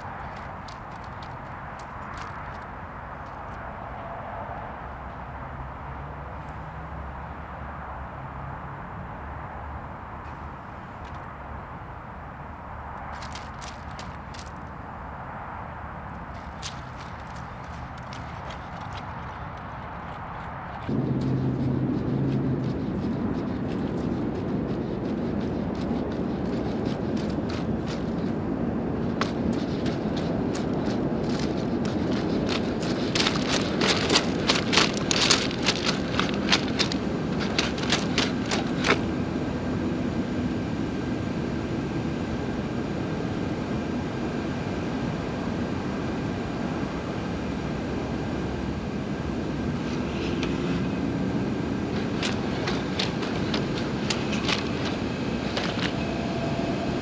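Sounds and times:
robot feet clicking on rocks: 0:00.0 - 0:03.5, 0:13.0 - 0:14.8, 0:16.2 - 0:20.9, 0:29.1 - 0:39.0, 0:51.9 - 0:56.1
steady low rumble: 0:09.8 - 0:57.0.

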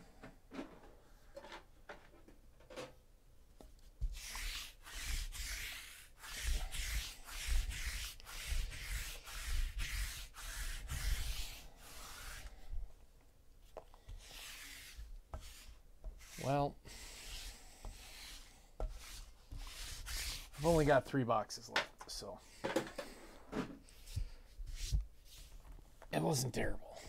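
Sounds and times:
lint roller rubbing on table: 0:04.0 - 0:12.8, 0:14.1 - 0:20.9, 0:23.8 - 0:25.7.

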